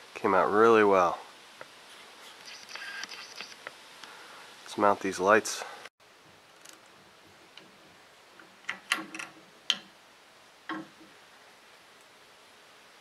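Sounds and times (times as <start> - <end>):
metal hardware clicking: 8.4 - 9.9.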